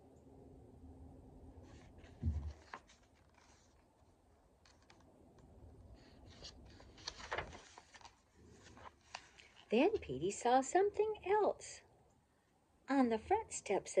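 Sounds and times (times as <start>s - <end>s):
paper page rustling: 1.6s - 5.1s, 6.0s - 10.4s
low thump: 2.2s - 2.6s.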